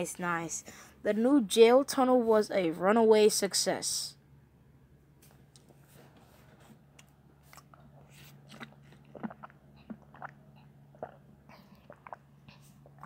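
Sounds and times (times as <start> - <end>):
low electrical hum: 0.0 - 13.0
mouth clicks and lip smacks: 6.9 - 13.0.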